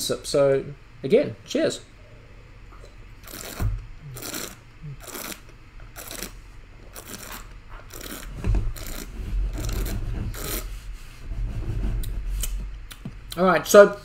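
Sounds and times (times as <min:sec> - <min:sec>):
person slurping wine: 0:03.2 - 0:05.4.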